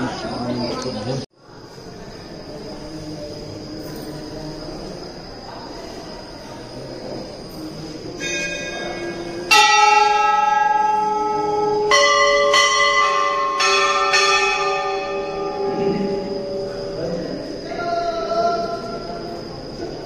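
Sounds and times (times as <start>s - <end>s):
metal temple bell ringing: 8.2s - 17.6s.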